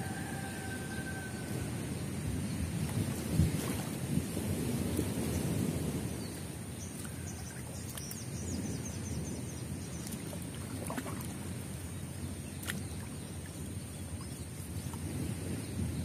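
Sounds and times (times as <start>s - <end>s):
water sloshing and splashing: 2.8s - 5.1s, 6.3s - 8.4s, 9.8s - 15.6s.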